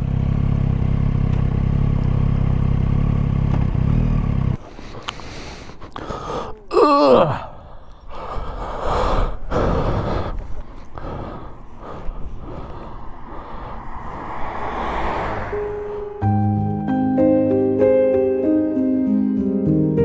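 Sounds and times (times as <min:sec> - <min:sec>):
person sighing: 0:04.7 - 0:14.0
car driving past: 0:11.4 - 0:16.7.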